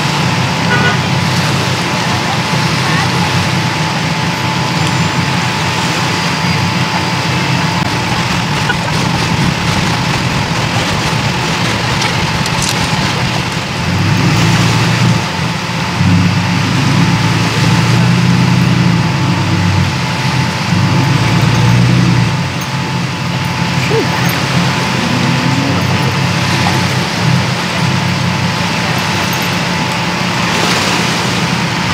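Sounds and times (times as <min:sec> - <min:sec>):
truck engine: 0:00.0 - 0:31.9.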